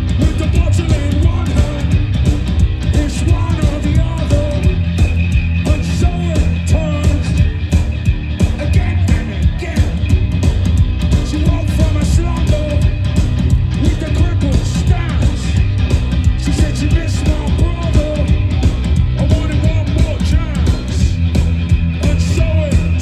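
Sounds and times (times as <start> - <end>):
punk rock band playing live: 0.0 - 23.0
person singing: 8.5 - 10.1.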